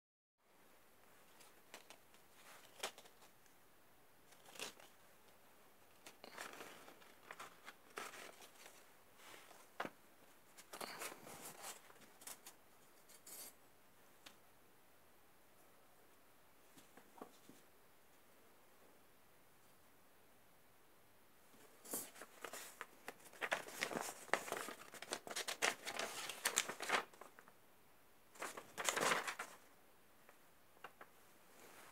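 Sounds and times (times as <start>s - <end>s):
paper rustling and crackling: 1.2s - 3.4s, 4.3s - 5.0s, 5.9s - 12.6s, 21.8s - 27.5s, 28.3s - 29.7s, 30.8s - 31.9s
plastic packet rustling: 22.0s - 27.5s, 28.4s - 29.7s.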